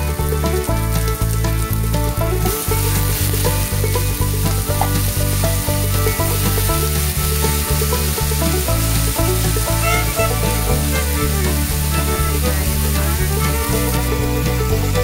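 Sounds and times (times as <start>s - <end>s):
background music with bass line: 0.0s - 15.0s
stir-fry sizzling in a pan: 0.0s - 15.0s.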